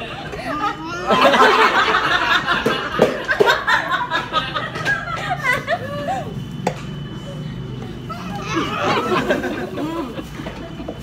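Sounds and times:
women talking: 0:00.0 - 0:01.4, 0:04.9 - 0:06.4
women laughing: 0:00.0 - 0:06.4, 0:08.2 - 0:11.0.

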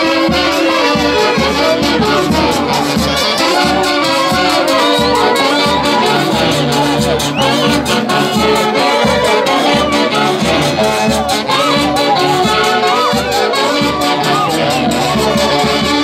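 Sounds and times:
saxophones and trumpets playing melody: 0:00.0 - 0:16.0
steady even beat: 0:00.6 - 0:16.0.

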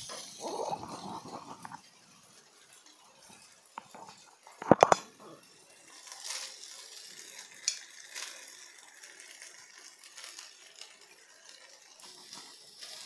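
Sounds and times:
light clicks and scrapes: 0:00.0 - 0:08.4
faint sizzle: 0:00.0 - 0:13.0.

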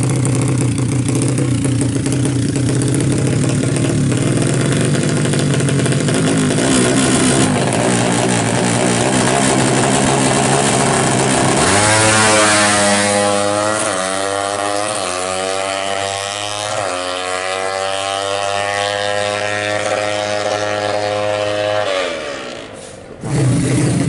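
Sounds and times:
motorcycle engine revving and accelerating: 0:00.0 - 0:24.0.

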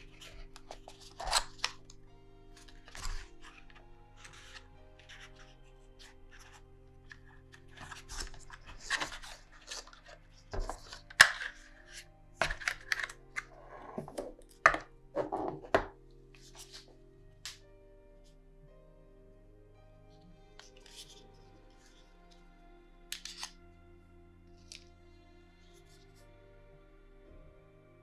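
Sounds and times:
cardboard packaging rustling: 0:00.0 - 0:02.0, 0:02.6 - 0:14.4
soft background music: 0:00.0 - 0:28.0.

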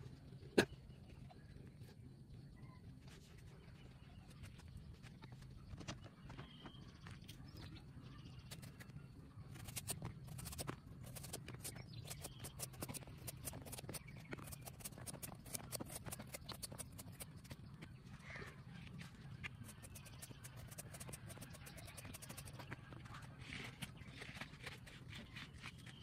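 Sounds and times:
knife cutting watermelon rind: 0:09.6 - 0:17.6, 0:19.6 - 0:22.8.

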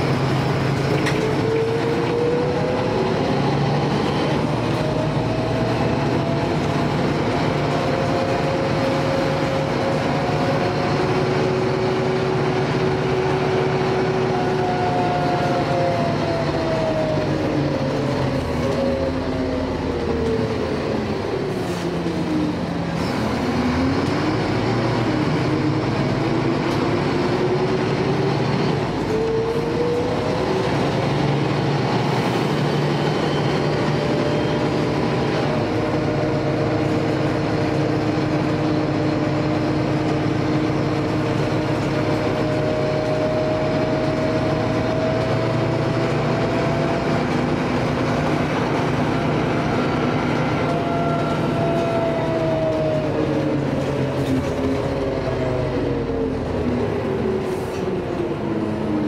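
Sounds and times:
bus engine and drivetrain whine: 0:00.0 - 0:59.0.

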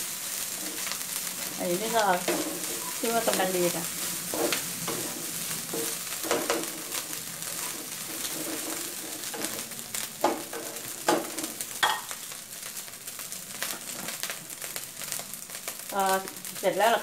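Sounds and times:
rice sizzling in a wok: 0:00.0 - 0:17.0
spatula scraping a pan: 0:00.3 - 0:12.2.

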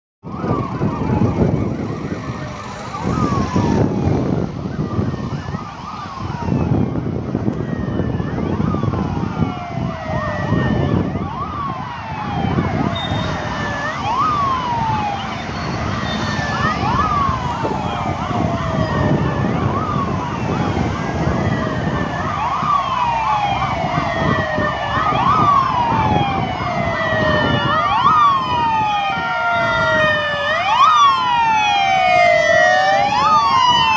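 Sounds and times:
cars passing on road: 0:00.2 - 0:33.9
police sirens wailing: 0:00.2 - 0:33.9.

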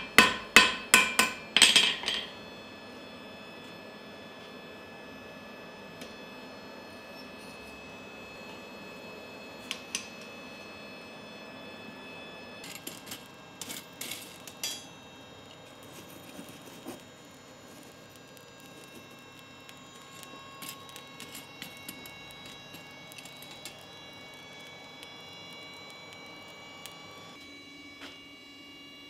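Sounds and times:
forge fire hissing and crackling: 0:12.0 - 0:27.4.

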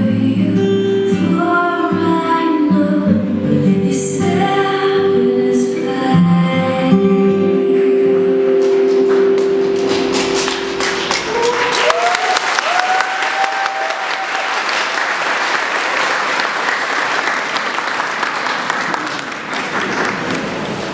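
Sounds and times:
dance music held notes: 0:08.1 - 0:12.0
audience applauding: 0:08.6 - 0:20.9
crowd cheering: 0:09.8 - 0:20.9.

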